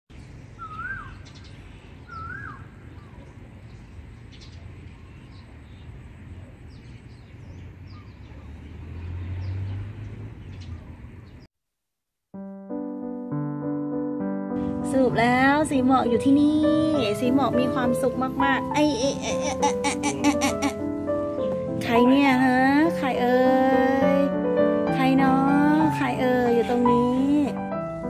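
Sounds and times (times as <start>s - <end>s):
bird whistled calls: 0.6s - 3.2s
high bird chirps: 0.6s - 5.9s
piano music: 12.4s - 28.0s.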